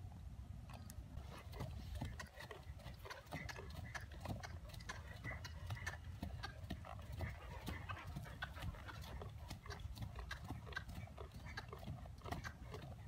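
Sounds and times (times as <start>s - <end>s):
horse hooves trotting on dirt: 0.7s - 13.0s.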